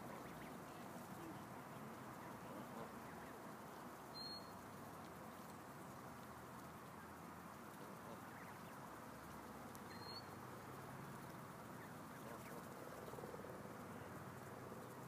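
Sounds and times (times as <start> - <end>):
geese pecking and rustling: 0.0 - 15.0
soft goose calls: 0.0 - 15.0.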